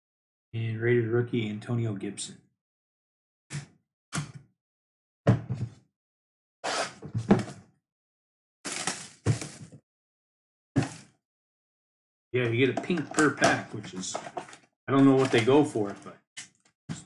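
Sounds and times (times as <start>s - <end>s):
cardboard boxes knocking on table: 8.7s - 9.8s.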